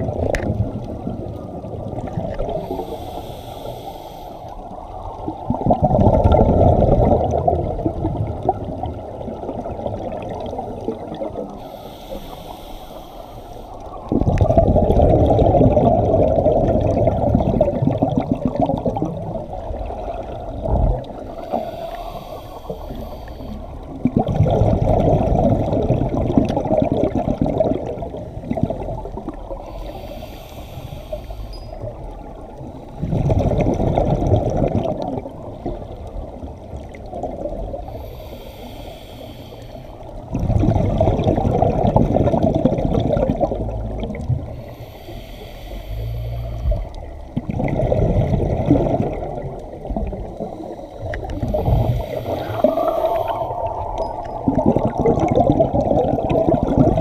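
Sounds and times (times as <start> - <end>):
exhaust bubbles rumbling: 0.0 - 2.8, 4.9 - 11.6, 14.0 - 21.6, 23.8 - 29.6, 33.0 - 38.0, 40.2 - 44.9, 45.7 - 57.0
regulator inhale hiss: 2.5 - 4.8, 11.4 - 14.1, 21.1 - 24.0, 29.5 - 31.9, 37.8 - 40.2, 44.4 - 47.1, 50.3 - 54.0.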